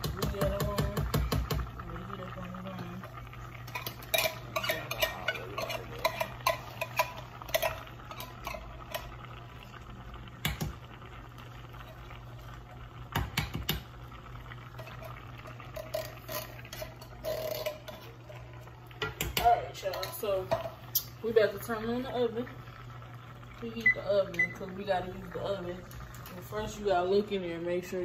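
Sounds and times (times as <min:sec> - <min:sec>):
steady low hum: 0:00.0 - 0:28.0
metal spoon clinking against pot: 0:03.7 - 0:09.1.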